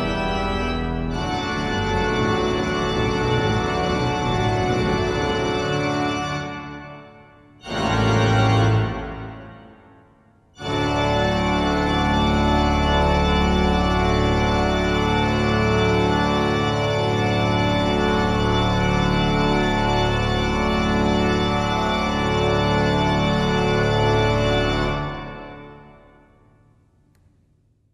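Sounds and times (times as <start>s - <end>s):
pipe organ chords: 0.0s - 26.5s.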